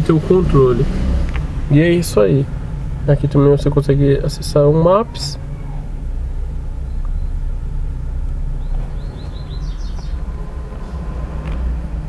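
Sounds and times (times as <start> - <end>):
low rumble in car cabin: 0.0 - 12.0
high bird-like chirps: 6.8 - 7.4, 8.5 - 10.4.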